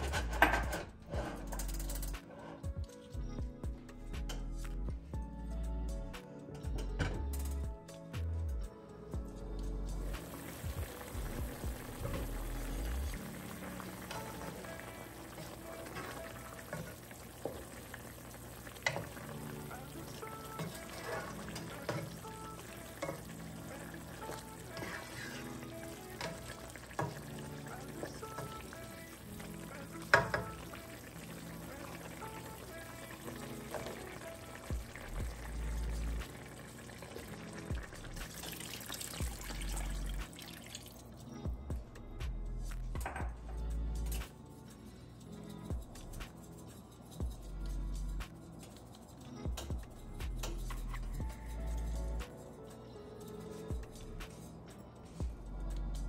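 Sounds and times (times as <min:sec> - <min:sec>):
soft background music: 0:00.0 - 0:56.0
music with deep bass beat: 0:01.6 - 0:13.3, 0:34.7 - 0:36.3, 0:41.5 - 0:44.4, 0:47.2 - 0:48.5, 0:49.4 - 0:52.4, 0:55.2 - 0:56.0
water pouring into pot: 0:10.1 - 0:41.2
stew bubbling in a pan: 0:10.2 - 0:41.0.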